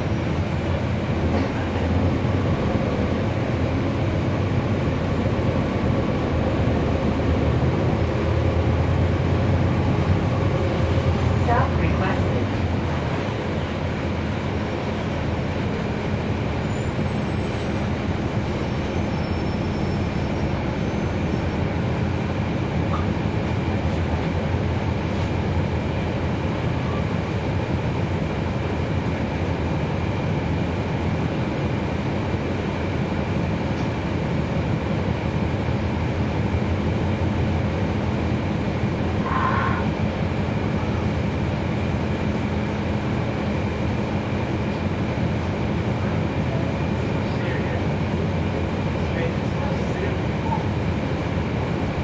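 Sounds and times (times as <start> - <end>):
bus diesel engine droning: 0.0 - 52.0.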